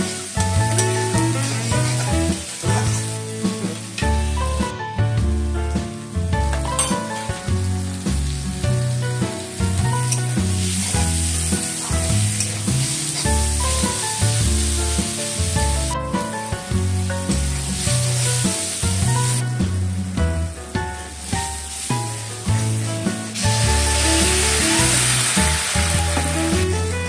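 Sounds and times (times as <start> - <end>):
metal spatula stirring: 0.0 - 4.0, 6.6 - 7.3, 9.9 - 14.2
vegetables sizzling in oil: 0.0 - 5.0, 6.0 - 27.0
background music with bass line: 0.0 - 27.0.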